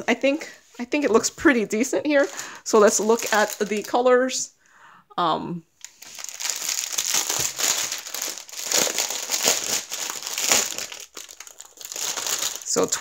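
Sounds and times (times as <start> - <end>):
plastic packaging crinkling: 2.1 - 4.1, 5.8 - 13.0.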